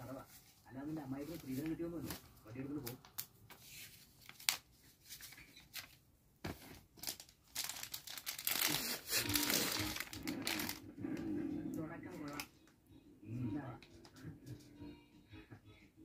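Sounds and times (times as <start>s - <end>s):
plastic bag crinkling: 1.2s - 10.9s.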